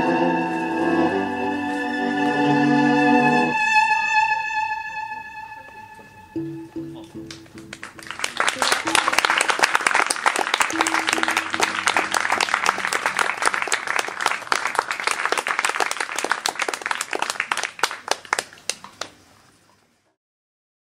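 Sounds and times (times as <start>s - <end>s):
audience applauding: 7.0s - 19.2s.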